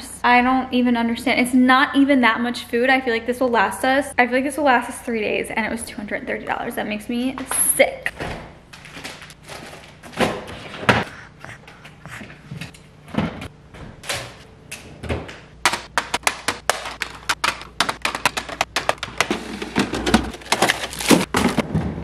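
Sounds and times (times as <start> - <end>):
plastic containers clicking and tapping: 15.3 - 21.6.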